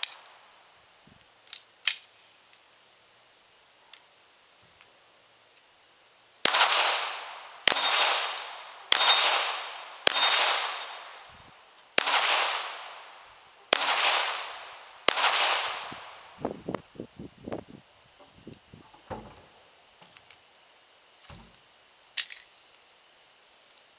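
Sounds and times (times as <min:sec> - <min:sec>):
pistol shots echoing: 0:06.4 - 0:11.2, 0:12.0 - 0:13.1, 0:13.7 - 0:16.3
soft knocks: 0:18.2 - 0:19.6.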